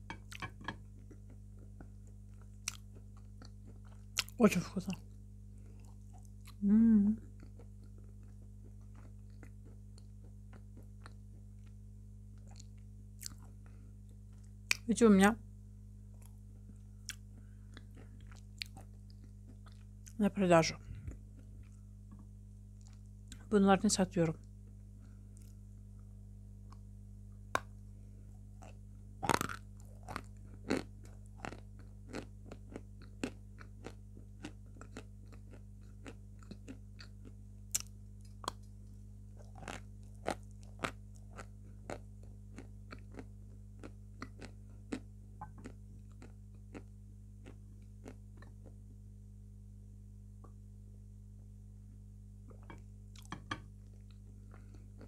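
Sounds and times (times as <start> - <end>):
chalk crunching while chewed: 28.6 - 38.8, 39.4 - 48.8.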